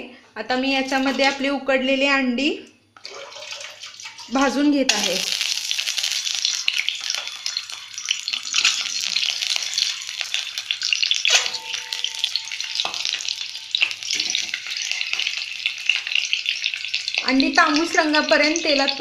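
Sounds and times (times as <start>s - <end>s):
eggs sizzling in hot oil: 3.0s - 19.0s
eggs knocking in pan: 4.0s - 18.6s.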